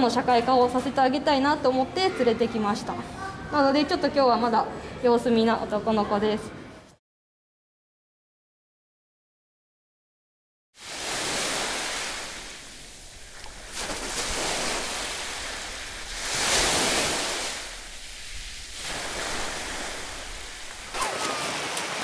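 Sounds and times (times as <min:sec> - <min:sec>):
sea surf washing on beach: 0:10.8 - 0:22.0.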